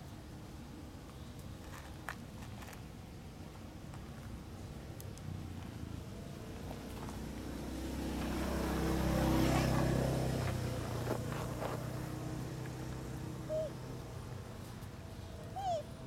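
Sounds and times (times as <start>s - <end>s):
vehicle engine passing by: 5.3s - 14.7s.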